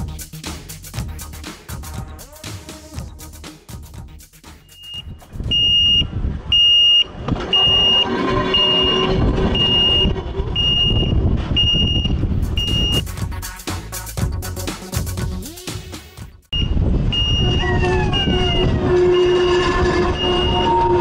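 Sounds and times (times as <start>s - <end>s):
railway crossing warning beeps: 4.6s - 13.0s, 16.5s - 18.6s, 20.1s - 21.0s
rumble of electric railway car: 7.0s - 12.3s, 16.6s - 21.0s.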